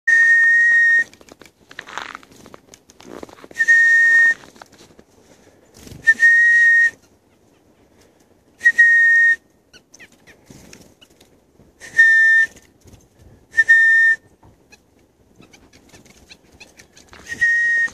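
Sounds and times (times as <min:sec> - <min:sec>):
high steady whistles: 0:00.1 - 0:01.1, 0:03.6 - 0:04.4, 0:06.0 - 0:07.0, 0:08.6 - 0:09.4, 0:11.8 - 0:12.6, 0:13.5 - 0:14.3, 0:17.2 - 0:17.9
faint rustling: 0:01.0 - 0:06.3.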